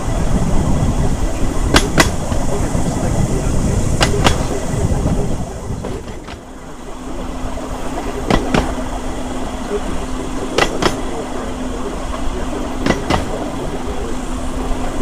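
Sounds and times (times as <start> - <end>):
steel wheels rumbling on rails: 0.0 - 15.0
wheels clicking over rail joints: 0.0 - 15.0.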